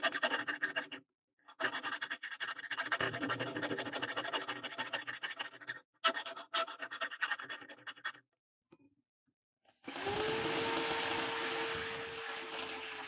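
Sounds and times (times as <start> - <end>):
electric drill humming: 9.9 - 13.0.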